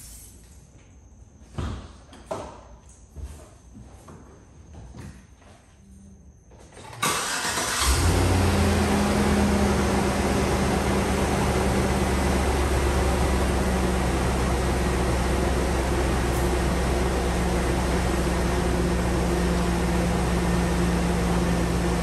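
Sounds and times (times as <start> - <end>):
car engine starting and idling: 6.8 - 22.0.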